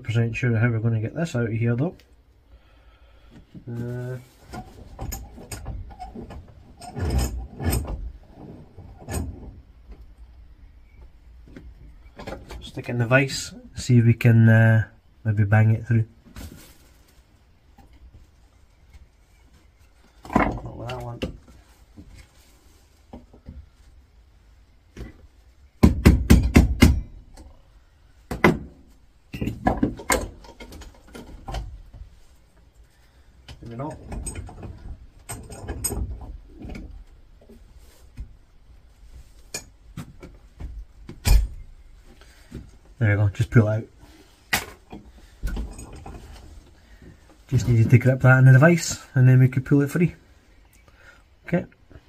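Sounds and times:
metal knocks and clunks: 20.2 - 21.6, 28.3 - 32.2, 33.5 - 37.6, 39.4 - 41.8, 44.5 - 46.6.

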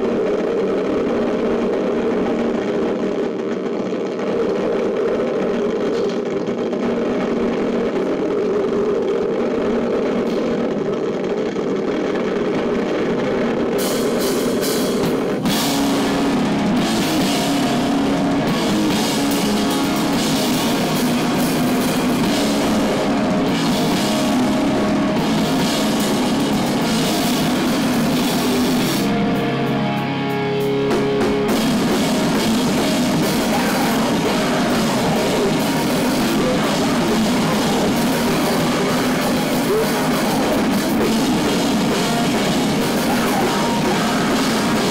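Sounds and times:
distorted electric guitars: 0.0 - 44.9
drum kit: 0.0 - 44.9
live heavy rock band: 0.0 - 44.9
cymbals: 13.7 - 30.0, 30.6 - 44.9.

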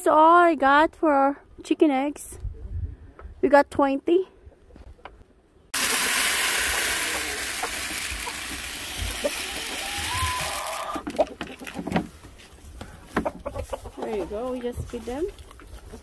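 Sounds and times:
grain pouring into plastic feeder: 5.8 - 11.0.

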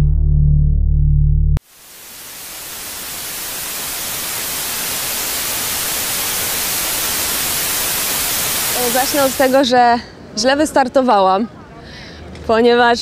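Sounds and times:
steady static hiss: 1.6 - 9.8.

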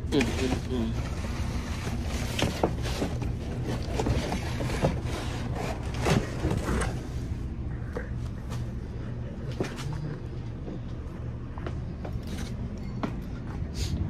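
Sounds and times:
steady low hum: 0.0 - 14.0
cardboard scraping and rustling: 0.1 - 7.4.

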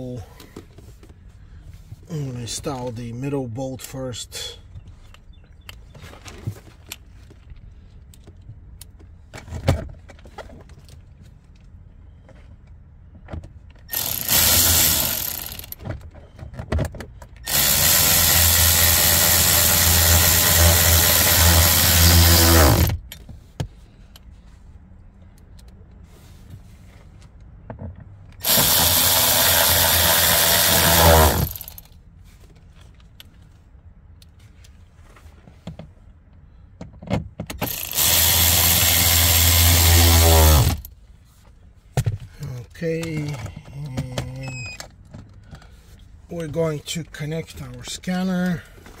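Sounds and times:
cordless electric ratchet whirring: 13.9 - 15.8, 17.4 - 23.0, 28.4 - 31.9, 37.6 - 40.9.

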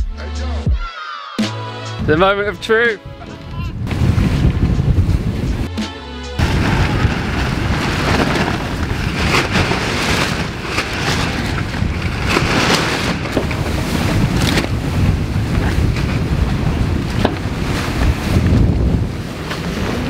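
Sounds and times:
wind buffeting microphone: 2.0 - 5.7, 6.4 - 20.0
rushing sea water: 6.4 - 20.0.

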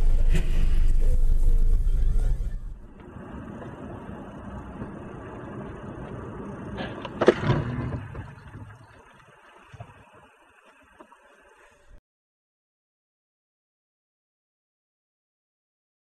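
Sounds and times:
car engine and road noise: 0.0 - 9.2.

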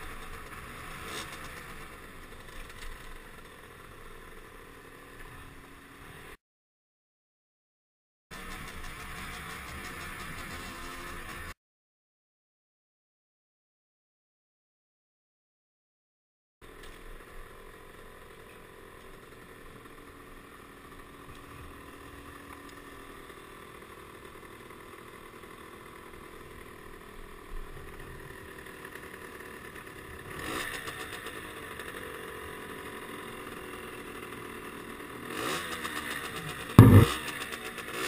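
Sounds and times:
motorcycle engine running: 8.3 - 11.5, 17.0 - 38.0.

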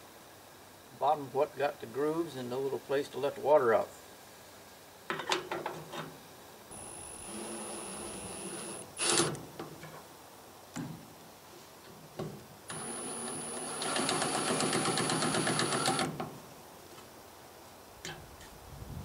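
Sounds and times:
cordless driver motor: 6.7 - 9.4, 12.7 - 16.1.

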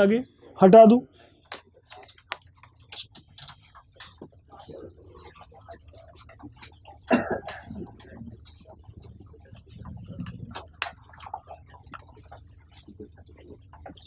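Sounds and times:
loud cough: 7.1 - 7.8.

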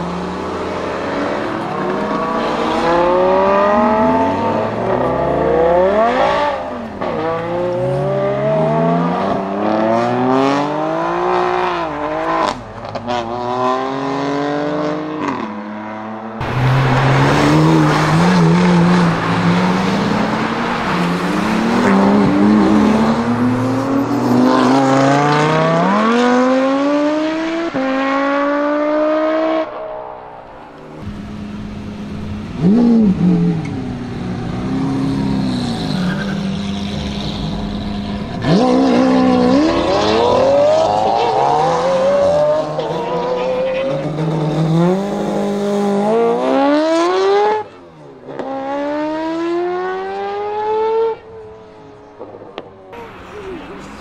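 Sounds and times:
sports cars accelerating away: 0.0 - 52.9
sports car accelerating through gears: 30.7 - 52.5.

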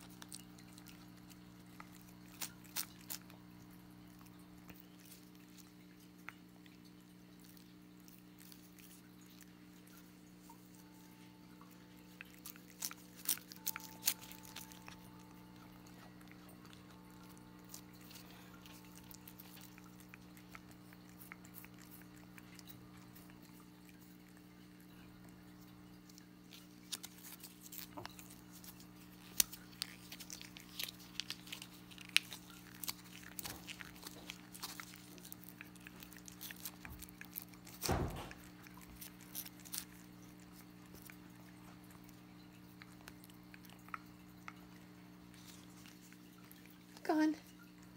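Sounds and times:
cat licking and lapping: 0.0 - 47.9
thump: 37.9 - 38.4.

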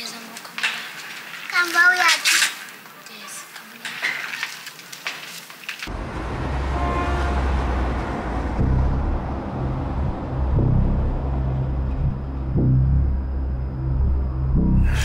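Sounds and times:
steady low rumble: 5.9 - 15.0.

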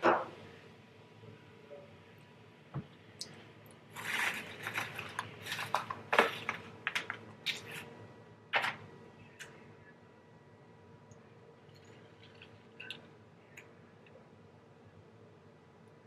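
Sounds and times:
plastic containers clicking and crackling: 4.2 - 7.7.

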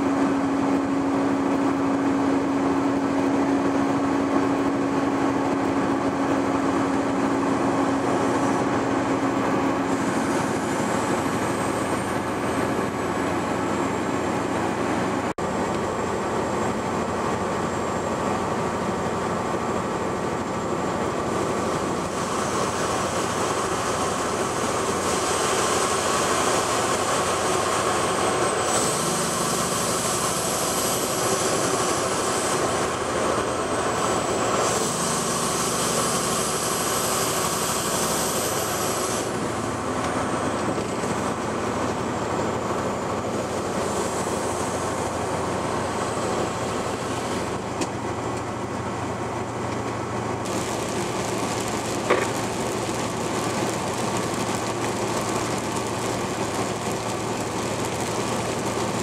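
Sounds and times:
truck engine drone: 0.0 - 59.0
tyre and road noise: 37.1 - 59.0.

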